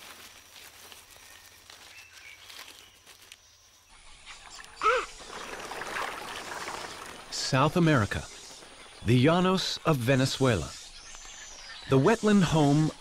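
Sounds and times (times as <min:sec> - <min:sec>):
flock of birds calling: 0:04.0 - 0:13.0.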